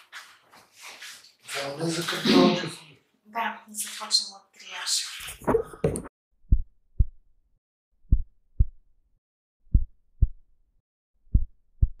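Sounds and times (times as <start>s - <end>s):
heartbeat thumps: 5.9s - 7.2s, 8.1s - 8.8s, 9.7s - 10.4s, 11.3s - 12.0s.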